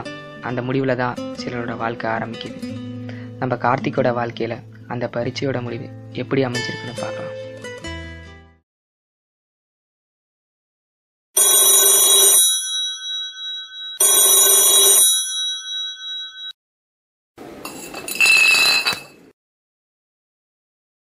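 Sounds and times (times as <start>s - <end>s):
alarm clock bell ringing: 11.4s - 16.6s.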